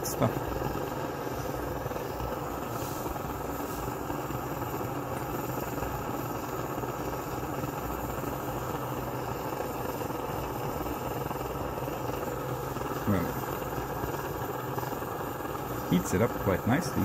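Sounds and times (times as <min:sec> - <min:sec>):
camping stove burner rushing: 0:00.0 - 0:17.0.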